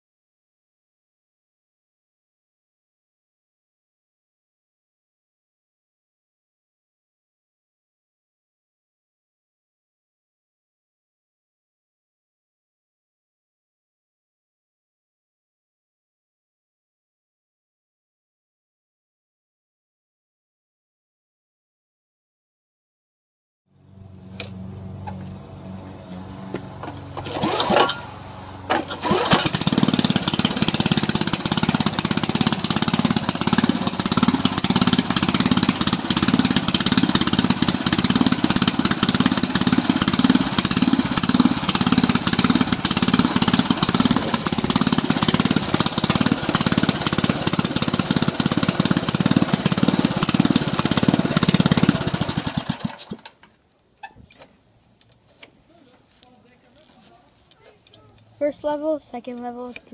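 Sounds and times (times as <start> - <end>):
lawnmower engine running: 23.8 - 53.5
recoil starter cord pulls: 26.8 - 28.1, 28.7 - 55.5.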